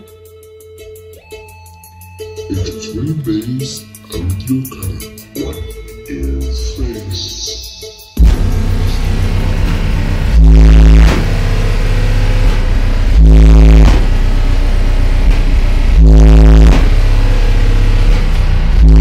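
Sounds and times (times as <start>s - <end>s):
distorted bass-heavy song: 0.0s - 19.0s
deep bass note hits: 8.2s - 19.0s.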